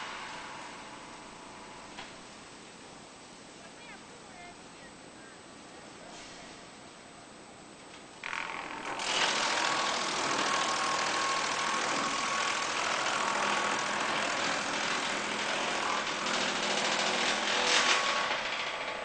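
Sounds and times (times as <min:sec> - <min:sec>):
wood chipper grinding pole: 0:08.2 - 0:19.0.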